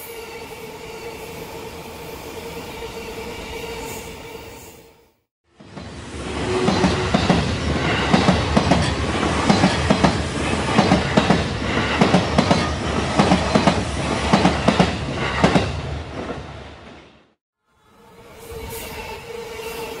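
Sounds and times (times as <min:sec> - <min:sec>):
train wheels clacking over rail joints: 0:06.5 - 0:15.8.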